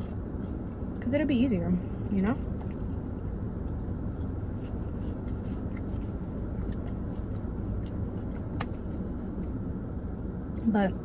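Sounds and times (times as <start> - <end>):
person chewing: 0.0 - 1.0, 2.4 - 9.7
low hum inside car: 0.0 - 11.0.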